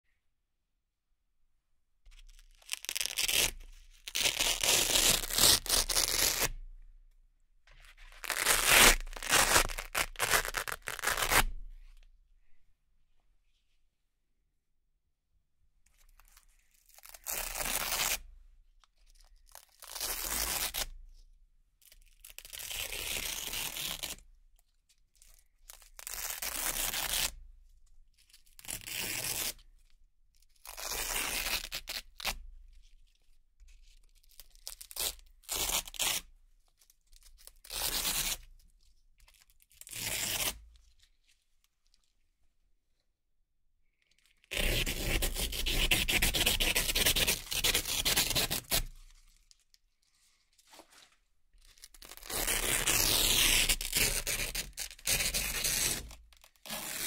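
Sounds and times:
velcro ripping: 2.2s - 6.5s, 7.9s - 11.5s, 16.9s - 18.2s, 19.5s - 20.9s, 44.2s - 49.5s, 51.7s - 57.0s.

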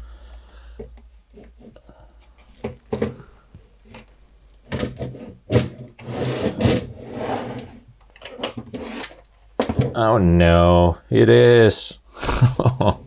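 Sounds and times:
plastic scraping and creaking: 4.7s - 10.0s.

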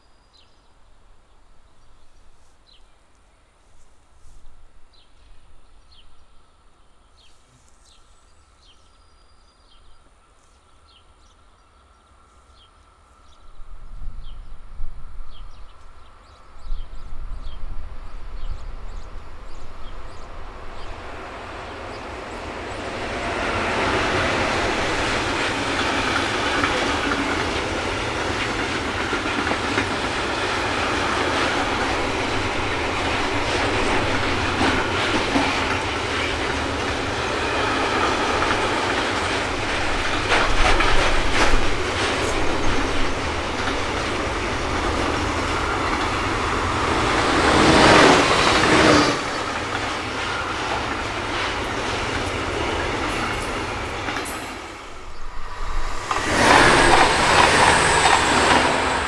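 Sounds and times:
train wheels rumbling on rail: 12.9s - 59.0s
rail clicks: 20.3s - 59.0s.

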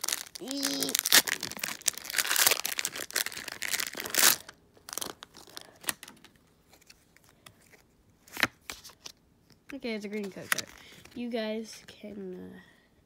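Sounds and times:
foil wrapper crinkling and tearing: 0.0s - 6.1s.

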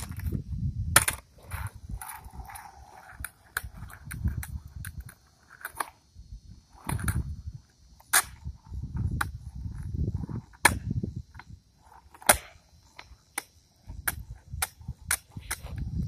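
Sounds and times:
skateboard clacking on ground: 0.0s - 6.0s, 6.7s - 16.0s
skateboard wheels rolling on concrete: 0.0s - 16.0s.

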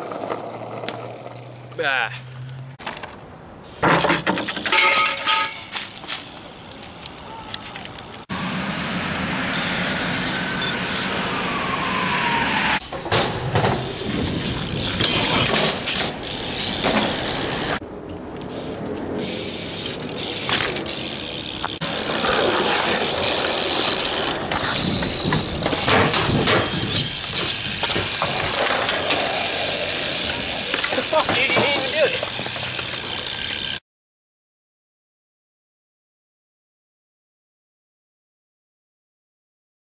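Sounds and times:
bike tyres rolling on concrete: 0.0s - 8.3s, 8.9s - 33.8s
bike landings and grinds clattering: 2.8s - 7.0s, 12.8s - 17.8s, 19.1s - 33.8s
freewheel hub clicking: 18.9s - 22.5s, 23.2s - 33.8s.

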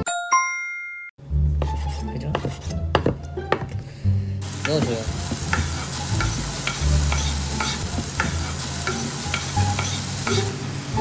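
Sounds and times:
chicken sizzling in a pan: 4.4s - 11.0s
utensil scraping a pan: 5.5s - 10.5s.

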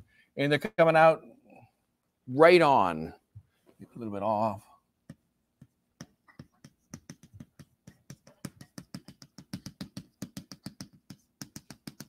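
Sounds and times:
chalk tapping on blackboard: 5.1s - 12.0s.

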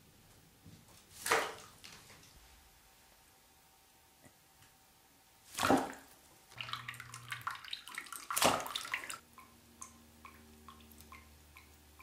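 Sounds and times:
parrot splashing in water: 6.6s - 9.2s.

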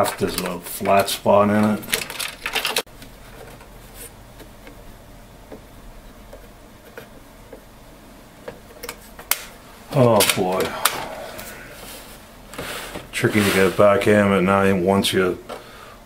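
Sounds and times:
plastic handling noises: 0.0s - 4.8s, 8.4s - 14.1s
low steady hum: 0.0s - 16.0s
faint clicks and taps: 6.3s - 7.7s.

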